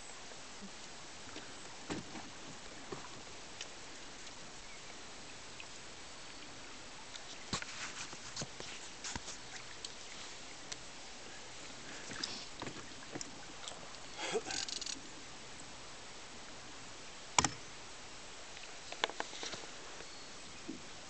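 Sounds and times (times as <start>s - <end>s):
steady hiss: 0.0s - 21.0s
knocks and clicks in canoe: 17.4s - 17.6s.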